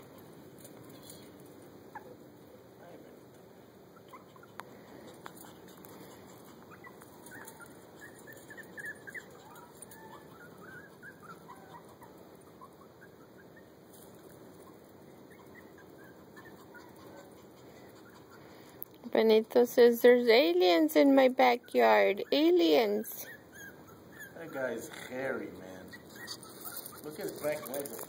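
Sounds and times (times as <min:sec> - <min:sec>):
puppies squeaking and whimpering: 0:03.9 - 0:18.7, 0:20.5 - 0:28.0.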